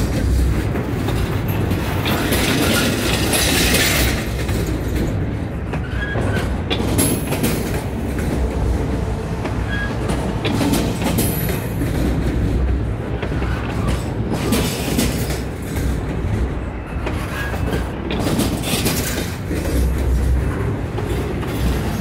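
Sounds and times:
train wheels rumbling on rail: 0.0s - 22.0s
wheels clacking over rail joints: 0.0s - 22.0s.

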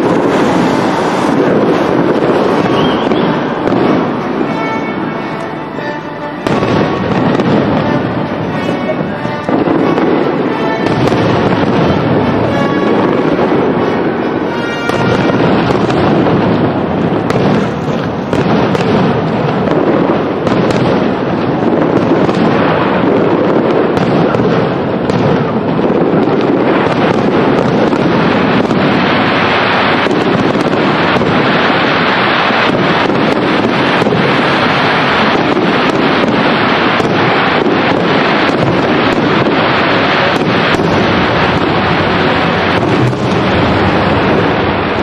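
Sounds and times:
music playing: 0.0s - 16.0s
fireworks bursting: 0.0s - 45.0s.

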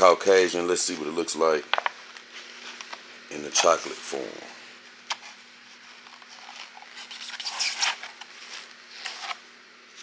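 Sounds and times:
packaging rustling and crinkling: 5.8s - 9.4s.

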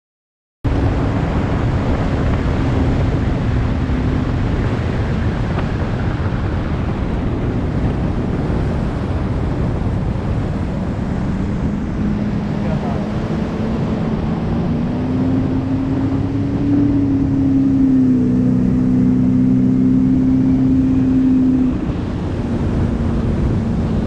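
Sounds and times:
water noise: 0.6s - 24.0s
wind rushing over microphone: 0.6s - 24.0s
faint boat motor hum: 0.7s - 24.0s.

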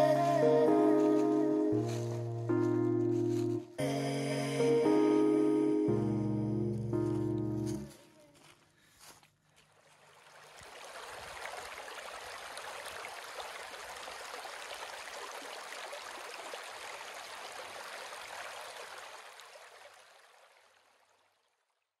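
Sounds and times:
creek water running over rocks: 9.0s - 21.6s.

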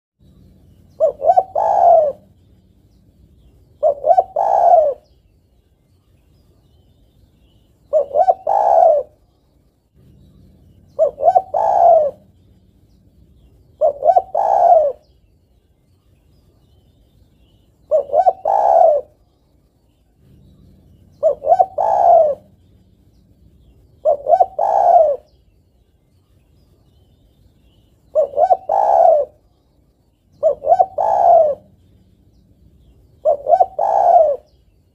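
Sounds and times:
dove cooing: 0.2s - 5.1s, 7.8s - 9.3s, 10.0s - 15.2s, 17.8s - 19.2s, 20.2s - 25.4s, 28.1s - 29.5s, 30.4s - 34.8s.

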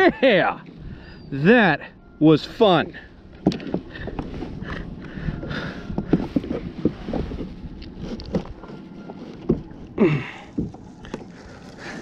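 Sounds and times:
water lapping against hull: 0.0s - 12.0s
knocks and scrapes on deck: 5.9s - 9.9s.

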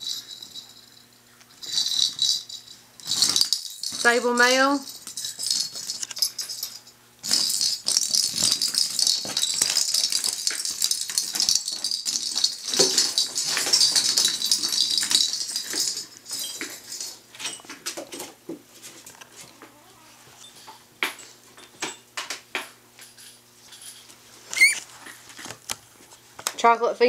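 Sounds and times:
toy rattling and crinkling: 0.0s - 18.3s, 23.1s - 25.6s.

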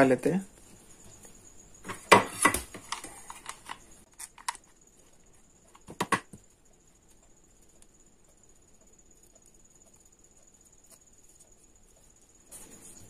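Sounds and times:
faint high-pitched whine: 0.0s - 13.0s
paper clicks and taps: 5.7s - 6.5s.

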